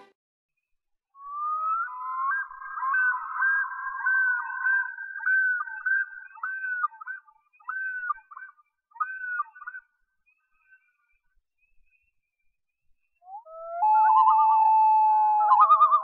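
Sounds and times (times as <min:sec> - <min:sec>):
loon calling: 0:01.4 - 0:09.7.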